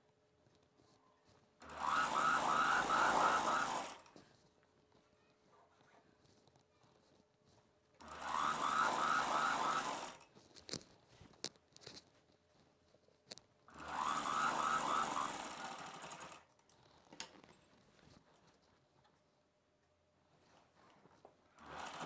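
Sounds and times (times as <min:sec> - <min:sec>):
sewing machine stitching: 0:01.6 - 0:04.1, 0:08.0 - 0:10.8, 0:13.7 - 0:17.4, 0:21.6 - 0:22.0.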